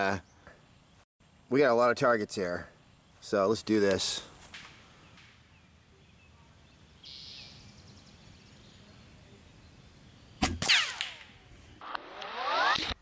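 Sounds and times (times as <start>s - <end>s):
air rifle shot: 10.4s - 12.0s.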